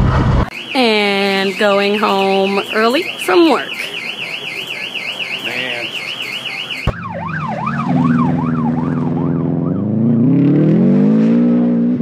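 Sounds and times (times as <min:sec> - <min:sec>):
siren wailing: 0:00.4 - 0:11.0
car engine revving: 0:07.0 - 0:12.0.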